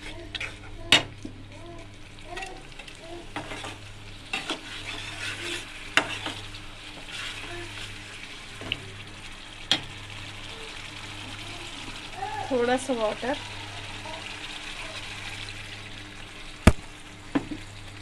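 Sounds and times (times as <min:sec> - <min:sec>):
food sizzling in a pan: 0:00.0 - 0:18.0
metal spatula scraping pan: 0:03.4 - 0:06.4.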